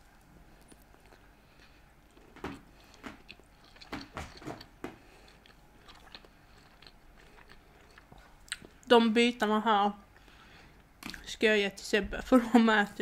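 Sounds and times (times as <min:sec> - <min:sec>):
chewing with wet mouth clicks: 0:00.6 - 0:08.9.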